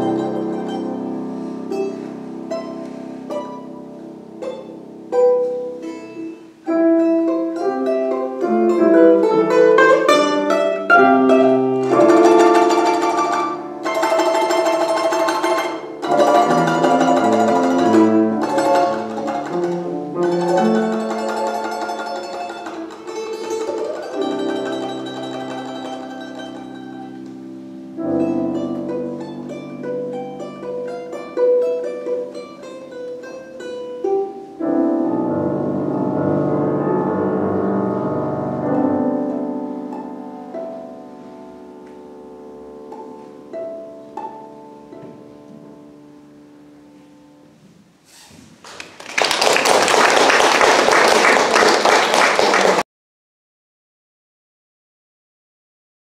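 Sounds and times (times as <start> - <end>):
balalaika plucked: 0.0 - 47.6
piano accompaniment: 0.0 - 47.7
audience applause: 48.6 - 52.8.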